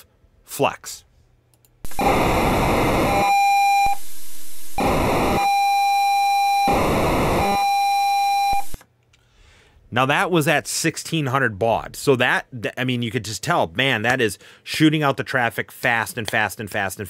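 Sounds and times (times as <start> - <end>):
hissy data stream: 1.9 - 5.4
steady tone: 1.9 - 8.8.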